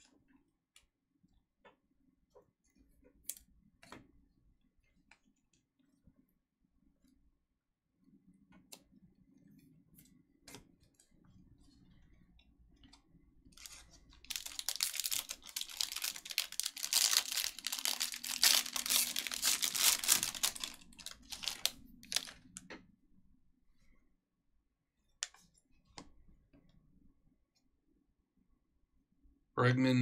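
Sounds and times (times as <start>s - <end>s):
foil pack crinkling and tearing: 13.6s - 22.6s.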